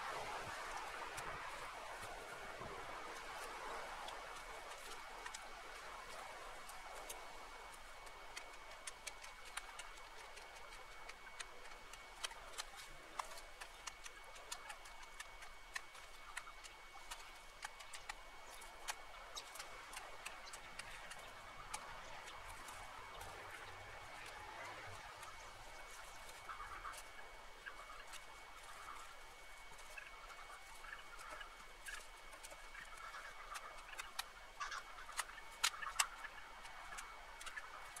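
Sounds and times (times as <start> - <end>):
twigs and branches snapping: 6.6 - 27.2.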